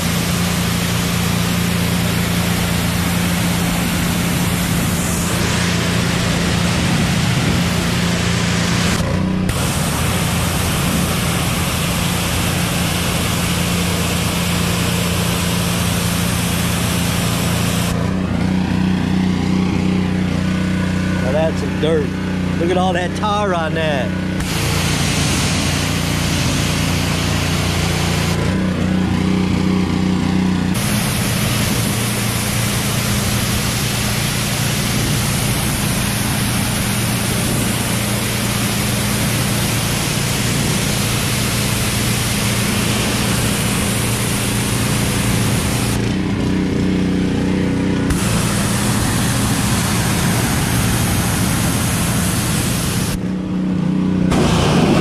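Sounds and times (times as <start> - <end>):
high-pressure water jet hissing: 0.0 - 53.2, 54.3 - 55.0
pressure washer motor humming: 0.0 - 55.0.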